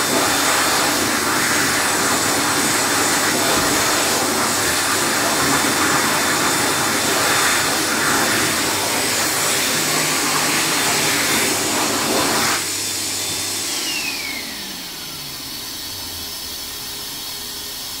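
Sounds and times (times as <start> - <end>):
hand dryer air rush: 0.0 - 18.0
hand dryer motor whine: 0.0 - 18.0.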